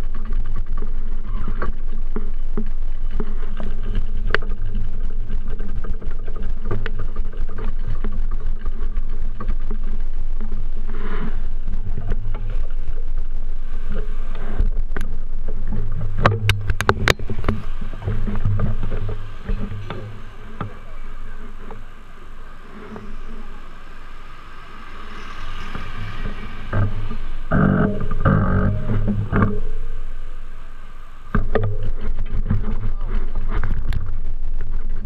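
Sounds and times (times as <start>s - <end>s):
sharp clicks and rattles: 0.0s - 23.7s
bicycle rolling over pavement: 0.0s - 35.0s
street traffic: 16.5s - 31.4s.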